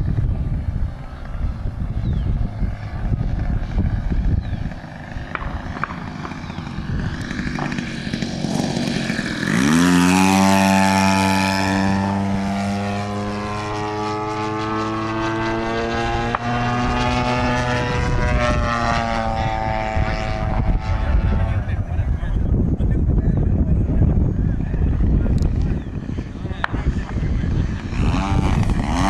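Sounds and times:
low rumble: 0.0 - 10.0
model airplane engine: 0.0 - 29.0.

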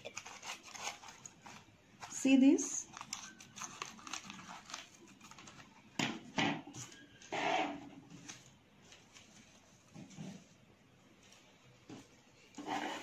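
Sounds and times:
scissors snipping paper: 0.0 - 5.7
paper rustling: 0.0 - 6.0, 8.1 - 10.6.

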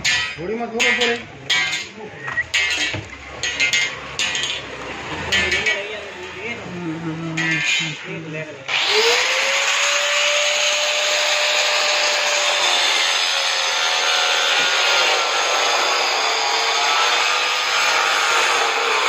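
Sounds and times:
electric power tool running: 8.7 - 19.0.

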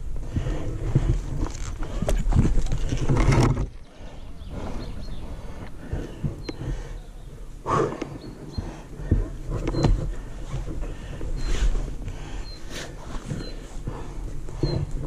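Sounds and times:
person breathing heavily: 0.0 - 2.4, 3.8 - 15.0
scuffs and knocks from bike and boots: 0.0 - 3.8, 8.5 - 15.0.

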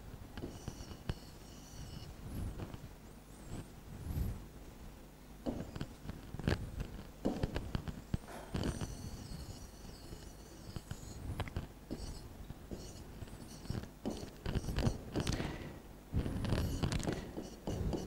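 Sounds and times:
stylus scratching on glass: 0.4 - 2.8, 5.5 - 15.6, 16.2 - 18.0.

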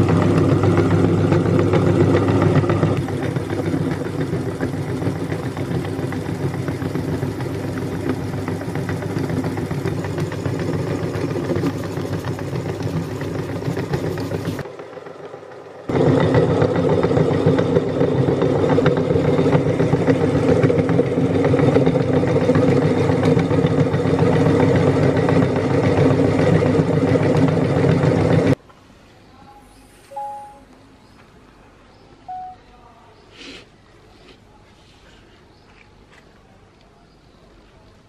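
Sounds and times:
meat grinder crushing cookies: 0.0 - 28.6.

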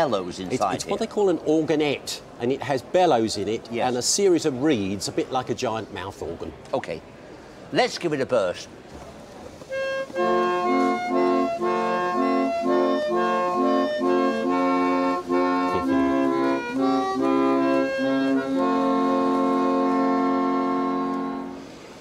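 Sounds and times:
reed organ playing chords: 9.7 - 21.8.

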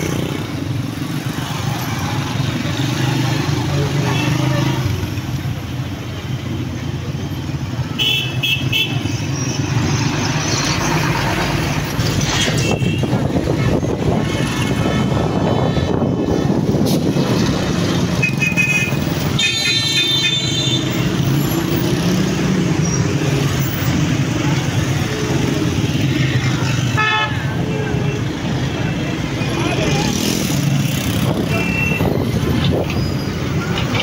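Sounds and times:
road traffic: 0.0 - 34.0
bus engine rumble: 9.2 - 19.4, 20.8 - 34.0
vehicle horns tooting: 18.2 - 21.0, 26.9 - 28.2, 31.4 - 32.2.

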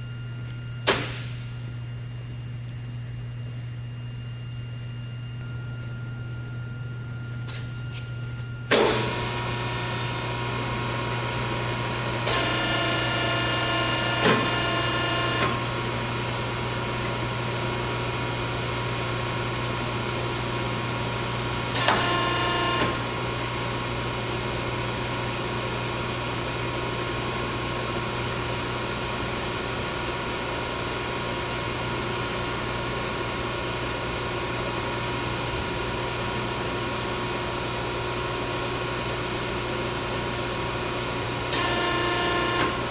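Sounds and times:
pitched machine whine: 0.0 - 26.3, 41.1 - 42.9.

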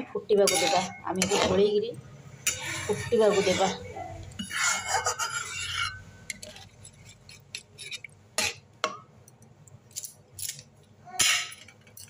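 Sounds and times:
metal spatula scraping a pan: 0.3 - 1.8, 2.4 - 8.6.

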